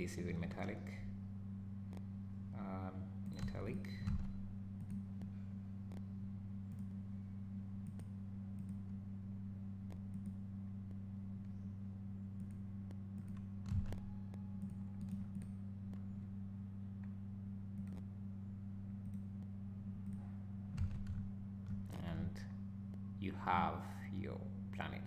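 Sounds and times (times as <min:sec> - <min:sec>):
low electrical hum: 0:00.0 - 0:25.0
computer mouse clicks: 0:03.2 - 0:05.0, 0:07.8 - 0:08.8, 0:09.9 - 0:10.4, 0:13.2 - 0:16.0, 0:19.0 - 0:19.3.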